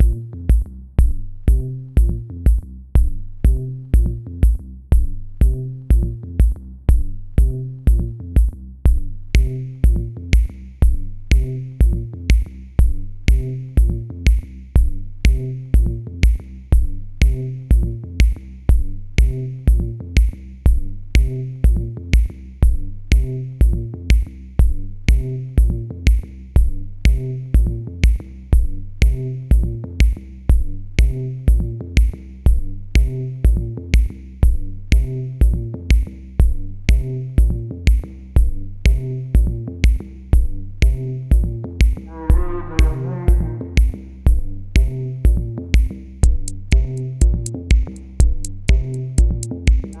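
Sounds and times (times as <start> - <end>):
hi-hat ticks: 0.0 - 42.1, 43.3 - 50.0
drum machine kick: 0.0 - 50.0
synth bass line: 38.4 - 50.0.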